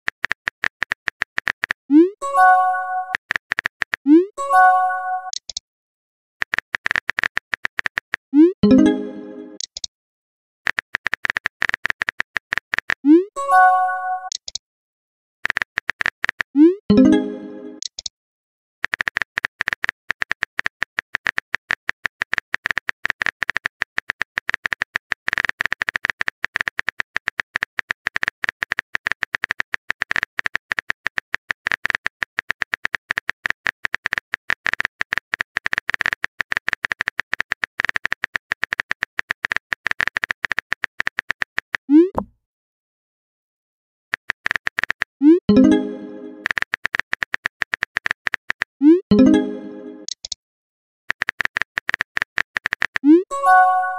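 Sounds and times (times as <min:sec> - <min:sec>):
rapid keyboard-like clicks: 0:00.0 - 0:01.8, 0:03.2 - 0:04.1, 0:06.4 - 0:08.2, 0:10.6 - 0:13.0, 0:15.4 - 0:16.5, 0:18.8 - 0:41.9, 0:44.1 - 0:45.2, 0:46.2 - 0:48.8, 0:51.1 - 0:53.1.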